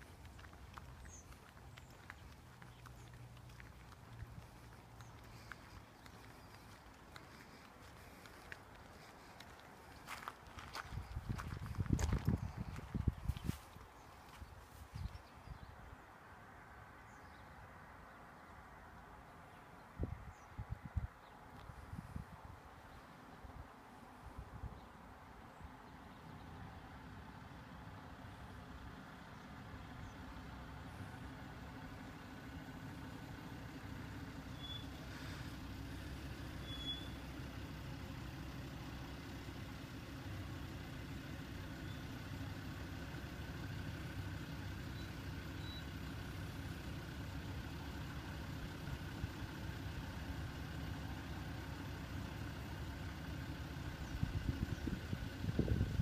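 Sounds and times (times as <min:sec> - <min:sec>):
vehicle engine rumbling: 0:00.0 - 0:56.0
faint high chirps: 0:34.5 - 0:35.0, 0:36.6 - 0:37.2.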